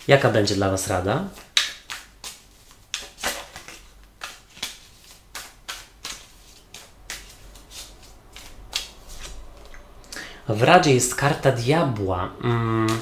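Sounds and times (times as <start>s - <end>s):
cards shuffling: 1.3s - 9.8s
card swishes and flicks: 1.4s - 9.7s.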